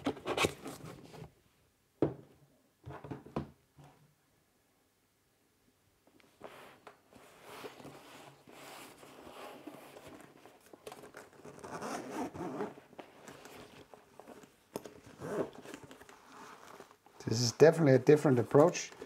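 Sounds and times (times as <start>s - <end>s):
fabric rustling: 6.4s - 17.3s
zipper rasping: 11.2s - 17.0s.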